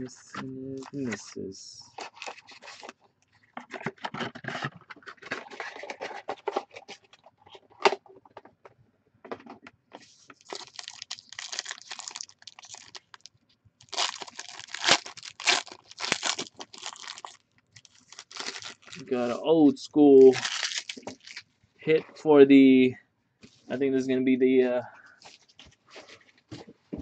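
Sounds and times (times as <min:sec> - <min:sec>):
foil wrappers crinkling and tearing: 0:01.9 - 0:03.0, 0:10.3 - 0:19.4, 0:20.2 - 0:21.4.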